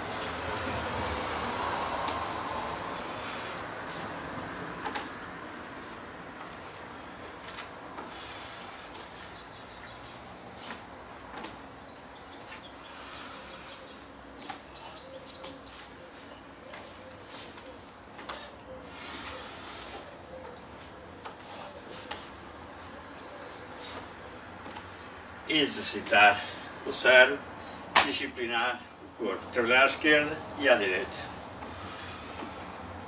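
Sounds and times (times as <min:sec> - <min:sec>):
steady outdoor background noise: 0:00.0 - 0:33.0
birds chirping in trills: 0:02.9 - 0:33.0
footsteps on wooden deck: 0:03.9 - 0:12.8, 0:13.8 - 0:18.5.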